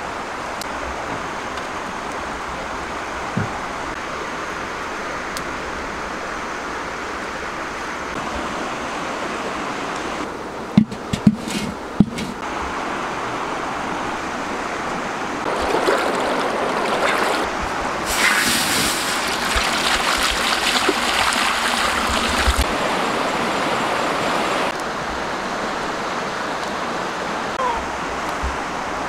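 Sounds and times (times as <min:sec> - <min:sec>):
river flowing: 0:00.0 - 0:11.0, 0:11.8 - 0:29.0
water pouring into a metal wok: 0:18.1 - 0:22.5.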